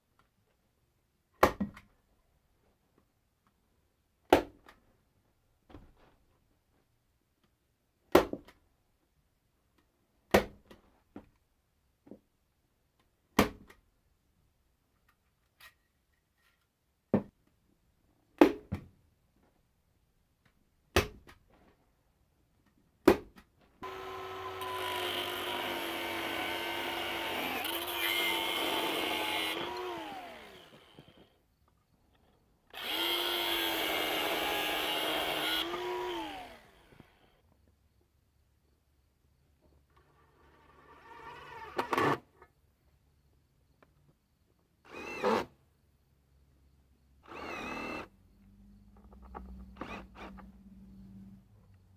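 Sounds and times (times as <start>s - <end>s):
angle grinder spinning: 23.8s - 31.2s, 32.7s - 37.0s.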